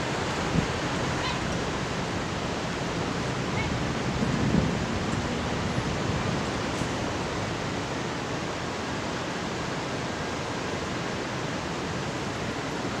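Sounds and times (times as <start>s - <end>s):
outdoor background hiss: 0.0s - 13.0s.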